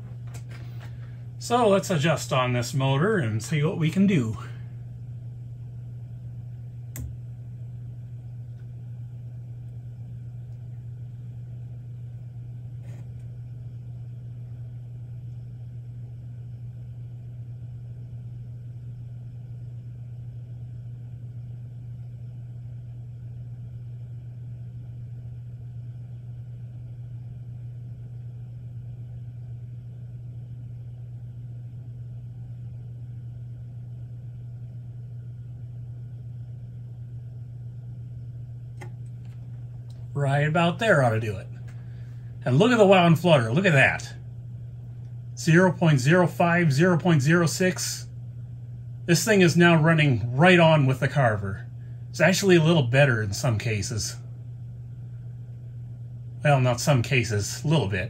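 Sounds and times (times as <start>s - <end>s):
steady low-pitched hum: 0.0s - 58.0s
faint click: 6.9s - 7.2s.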